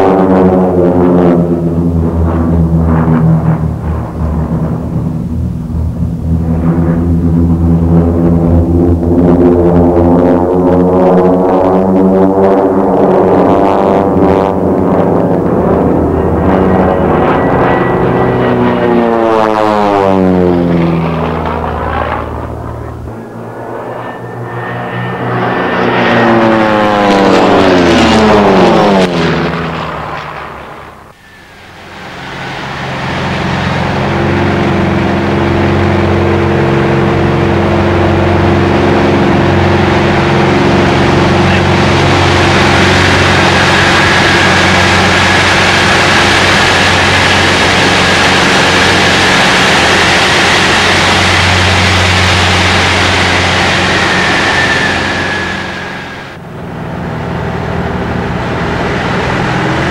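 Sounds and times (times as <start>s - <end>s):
plane engine and propeller drone: 0.0s - 59.9s
propeller plane passing overhead: 0.0s - 59.9s
faint high whine: 14.0s - 59.9s.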